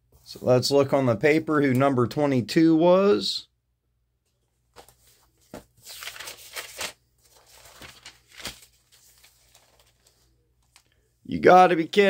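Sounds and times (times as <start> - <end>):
paper pages rustling: 4.6 - 11.1.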